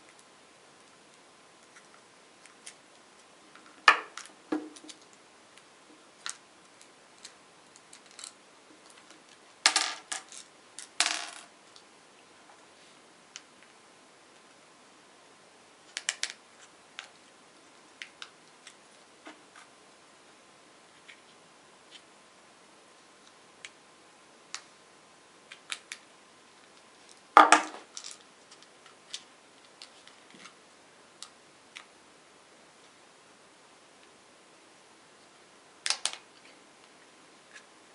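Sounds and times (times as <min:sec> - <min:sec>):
small parts clicking: 0:35.8 - 0:36.2.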